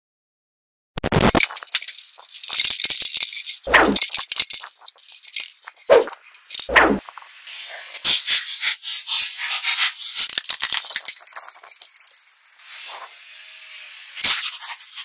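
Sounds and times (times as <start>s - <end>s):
plastic balls cracking under tyre: 1.4s - 7.1s.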